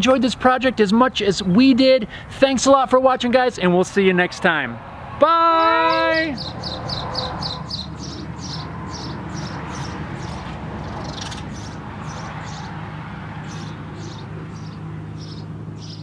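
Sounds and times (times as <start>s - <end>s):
sparrow chirping: 5.6s - 16.0s.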